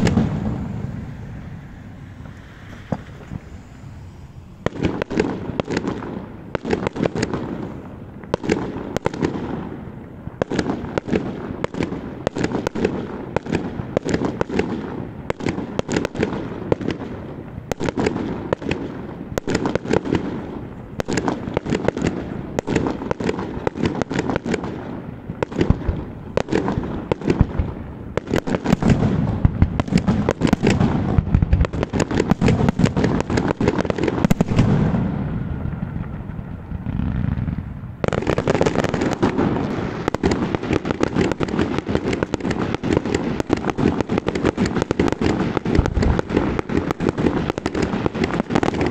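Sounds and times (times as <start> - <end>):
fireworks shells bursting: 0.0 - 9.4.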